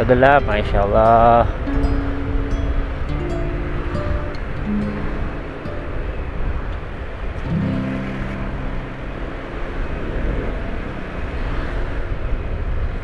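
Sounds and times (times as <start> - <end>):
traffic noise: 0.0 - 13.0
nearby engine low note: 1.7 - 11.8.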